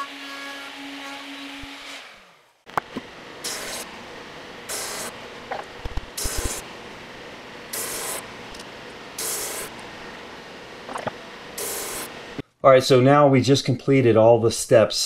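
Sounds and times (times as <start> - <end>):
drum sander running: 2.7 - 12.4
sanding hiss: 7.8 - 8.2, 9.2 - 9.7, 11.6 - 12.1.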